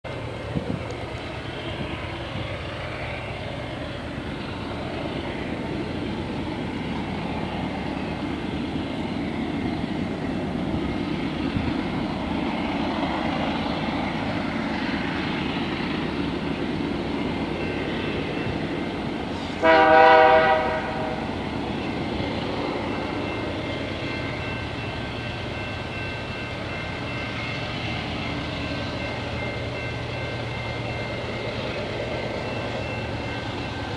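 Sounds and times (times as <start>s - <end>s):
diesel locomotive horn blast: 19.3s - 21.5s.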